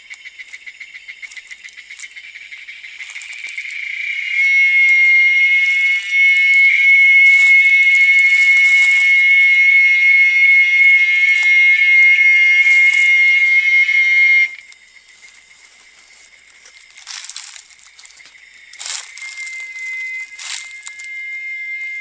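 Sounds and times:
faint steady tone: 2.1 - 22.0
shrill high-pitched tone: 4.2 - 14.6, 18.8 - 22.0.

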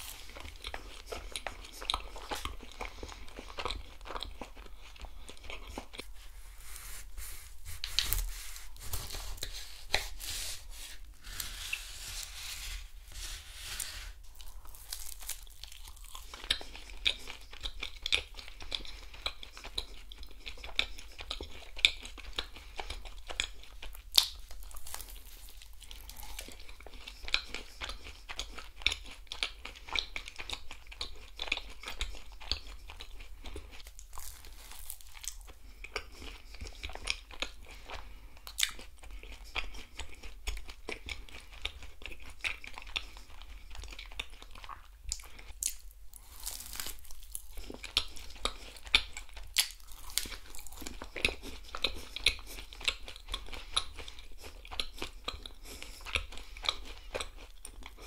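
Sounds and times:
crunchy bites: 13.8 - 17.2, 24.1 - 26.6, 33.8 - 35.5, 45.1 - 51.0
chewing and wet mouth clicks: 14.5 - 25.2, 35.0 - 45.9, 47.2 - 58.0.

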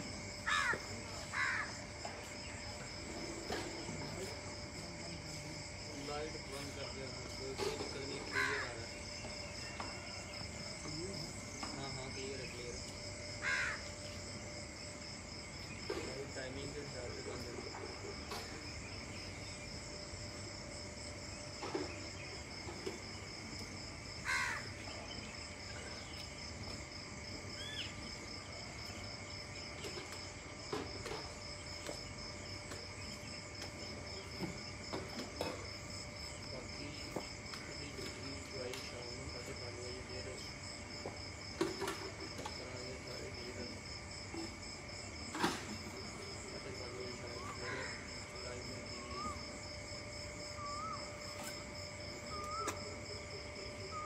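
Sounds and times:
high insect trill: 0.0 - 54.0
crows cawing: 0.4 - 1.9, 8.1 - 8.9, 13.4 - 14.0, 24.2 - 24.8, 47.6 - 48.1.

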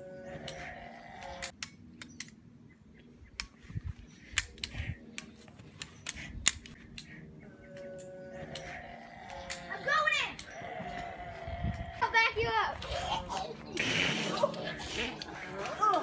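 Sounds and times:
toy rifles clicking and snapping: 1.4 - 2.4, 4.3 - 7.2.

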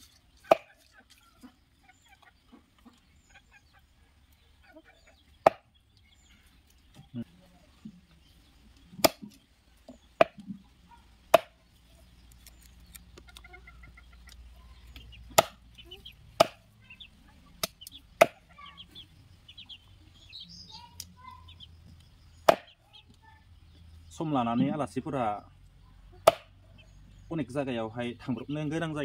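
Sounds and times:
blade chopping meat on wood: 0.5 - 0.7, 9.0 - 9.4, 11.3 - 11.6, 15.3 - 15.6, 16.4 - 16.6, 22.4 - 22.7, 26.2 - 26.5
faint calls: 10.5 - 27.4.

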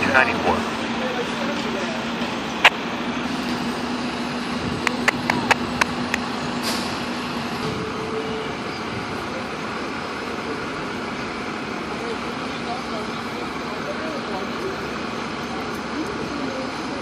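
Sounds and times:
city traffic noise: 0.0 - 17.0
fire trucks idling: 0.0 - 17.0.

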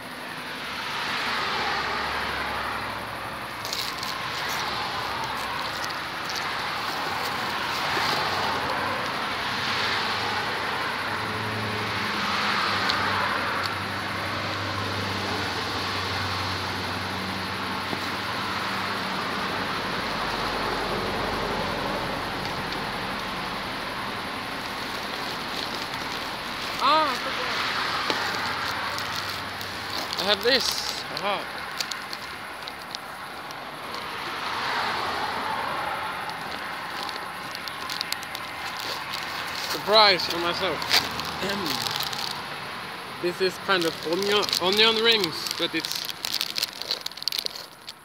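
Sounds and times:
passing cars: 0.0 - 48.0
bag crackling: 3.6 - 9.2, 24.5 - 42.4, 43.3 - 48.0.

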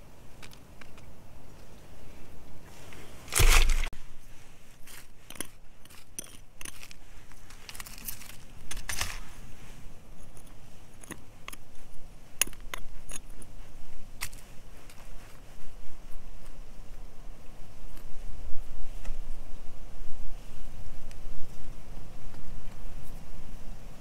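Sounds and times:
gravel crunch: 0.3 - 18.2
steel bar scraping stones: 2.9 - 3.9, 4.7 - 9.4, 10.1 - 13.6, 14.2 - 15.1.

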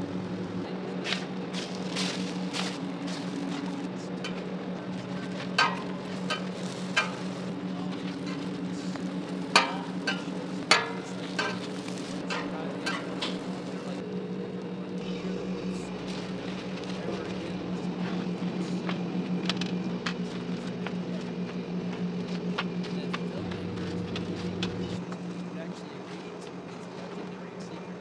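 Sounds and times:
steady low hum: 0.0 - 28.0
buns sizzling on a griddle: 8.4 - 14.0.

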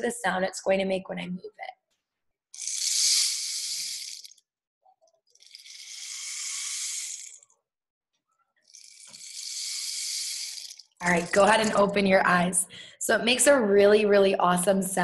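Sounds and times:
rain stick pebbles trickling: 5.4 - 7.4, 8.7 - 11.8.

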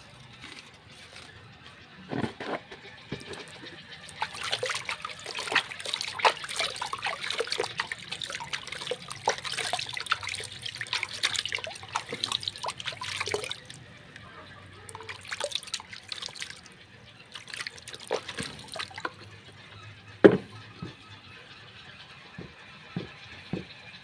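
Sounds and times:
hand splashing water in basin: 3.4 - 14.2, 14.8 - 16.7, 17.3 - 19.2.

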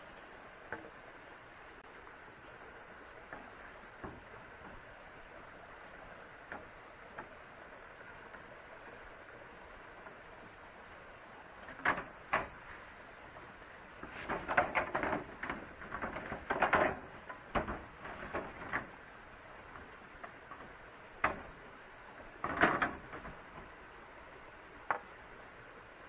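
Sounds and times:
steady hiss: 0.0 - 26.0
clattering knocks and scrapes: 11.6 - 19.0.

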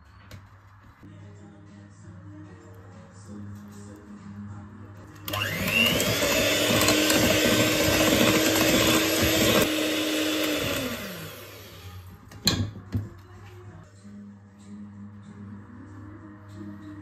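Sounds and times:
electric hand mixer whirring: 5.2 - 12.1.

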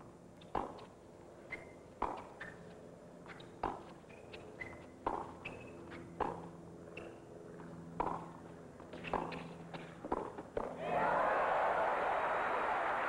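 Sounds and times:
tennis ball bouncing: 0.4 - 10.8
tennis racket hitting ball: 8.0 - 10.7.

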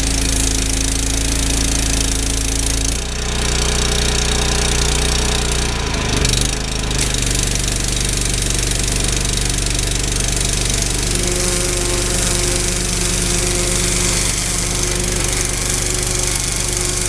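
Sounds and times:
pressure washer engine running: 0.0 - 17.0
water jet hissing: 9.0 - 17.0.

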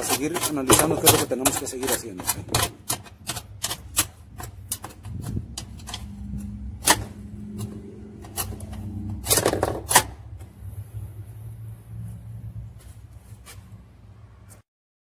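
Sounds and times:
screwdriver scraping and tapping metal: 0.0 - 10.5.

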